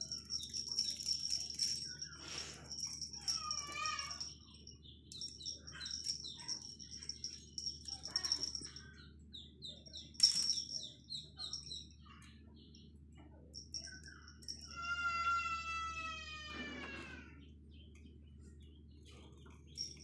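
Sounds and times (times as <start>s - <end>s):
rapid high-pitched chirps: 0.0s - 12.0s.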